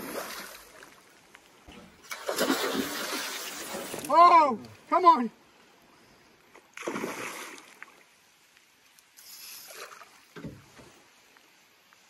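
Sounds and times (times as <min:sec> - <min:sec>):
fish splashing at water surface: 0:02.0 - 0:04.1.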